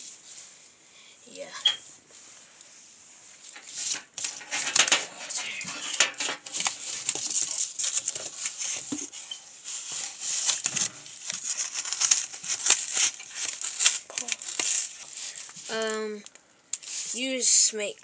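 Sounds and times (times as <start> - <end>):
cardboard scraping and rustling: 3.4 - 16.0.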